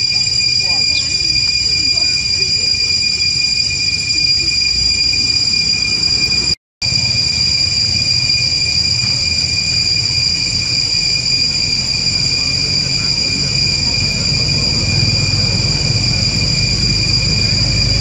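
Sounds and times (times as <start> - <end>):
high-pitched two-tone drone: 0.0 - 18.0
low rumble: 6.8 - 18.0.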